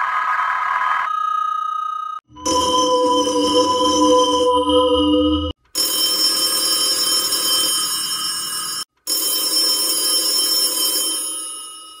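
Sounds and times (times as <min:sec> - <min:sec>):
telephone bell ringing: 0:05.8 - 0:12.0.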